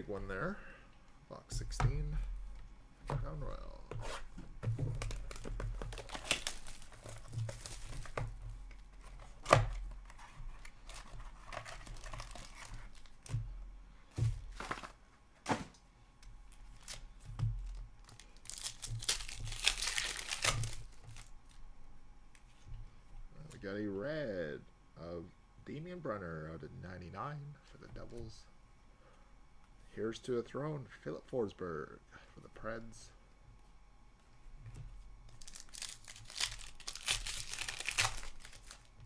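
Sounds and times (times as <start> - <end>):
packaging tearing and crinkling: 4.9 - 8.2, 9.0 - 13.2, 16.7 - 17.0, 17.6 - 21.3, 35.3 - 38.9.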